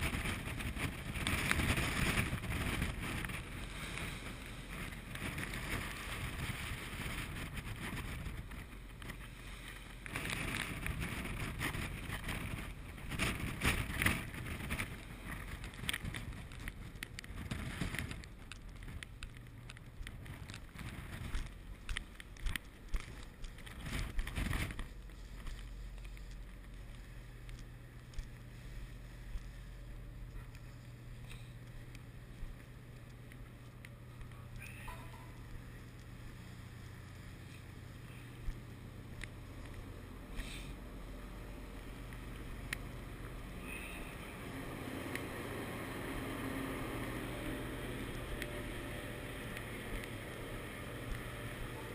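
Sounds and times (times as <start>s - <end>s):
wind buffeting microphone: 0.0s - 25.7s
ship hum: 0.0s - 51.9s.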